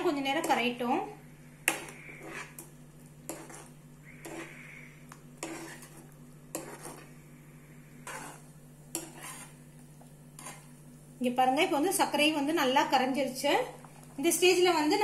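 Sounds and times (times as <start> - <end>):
metal spoon scraping a pan: 1.6 - 7.2, 7.9 - 10.8.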